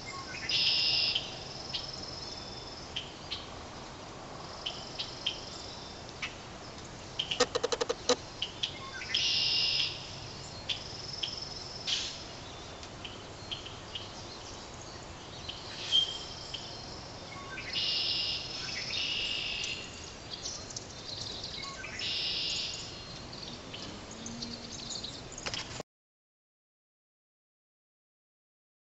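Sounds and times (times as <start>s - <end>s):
faint outdoor background noise: 0.0s - 25.8s
high chirping and trilling calls: 7.2s - 8.2s.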